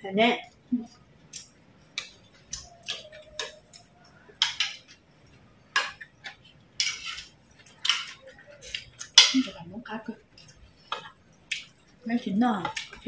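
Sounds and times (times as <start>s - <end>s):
spoons clinking on plates: 1.4s - 9.7s.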